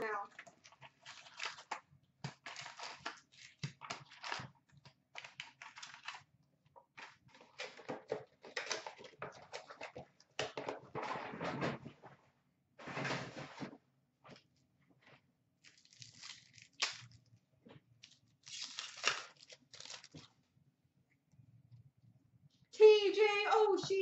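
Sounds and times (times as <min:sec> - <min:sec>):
card wrappers crinkling: 0:00.3 - 0:06.3, 0:15.6 - 0:17.2, 0:18.0 - 0:20.3.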